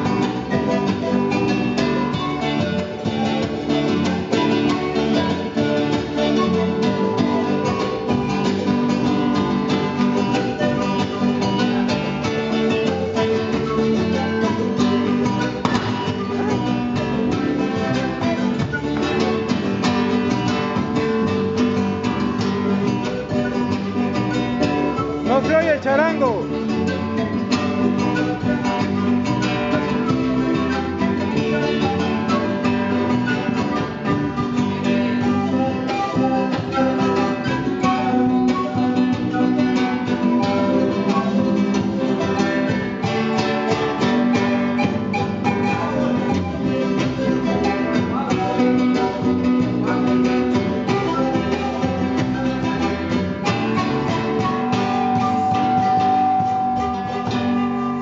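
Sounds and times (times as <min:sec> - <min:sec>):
acoustic guitar strumming: 0:00.0 - 0:58.0
charango strumming: 0:00.0 - 0:58.0.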